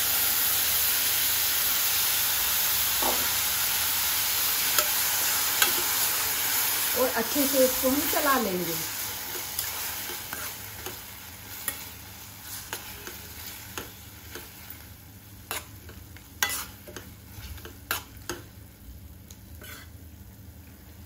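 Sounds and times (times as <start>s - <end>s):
vegetables sizzling: 0.0s - 21.0s
spoon scraping a pan: 4.7s - 6.1s, 9.2s - 14.8s, 15.4s - 18.6s, 19.5s - 20.0s.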